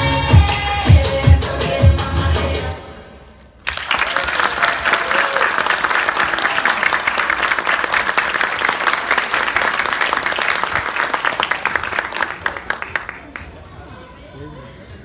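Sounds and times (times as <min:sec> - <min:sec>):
audience applauding: 0:03.6 - 0:13.6.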